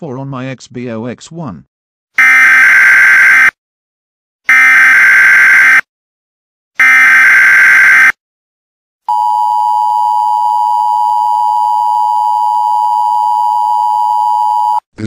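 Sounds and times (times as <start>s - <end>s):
harsh digital data screech: 2.2s - 3.5s, 4.5s - 5.8s, 6.8s - 8.1s.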